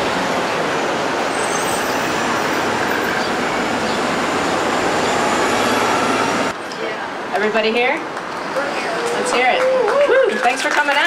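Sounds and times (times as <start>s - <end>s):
bus driving past: 0.0s - 7.3s
street traffic: 0.0s - 11.0s.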